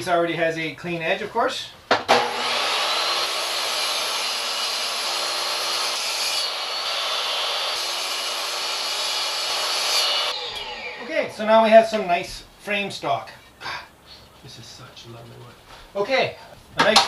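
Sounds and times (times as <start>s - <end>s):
table saw whining: 2.1s - 11.5s.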